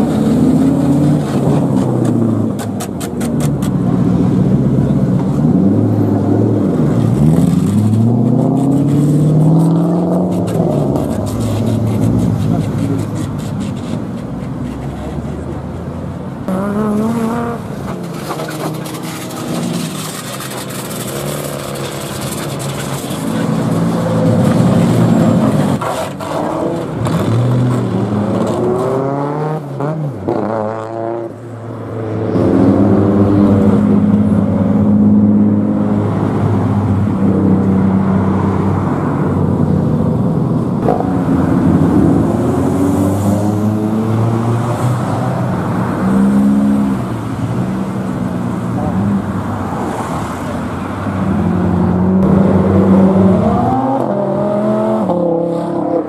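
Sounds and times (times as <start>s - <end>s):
cars revving loud exhausts: 0.0s - 15.7s, 16.4s - 56.0s.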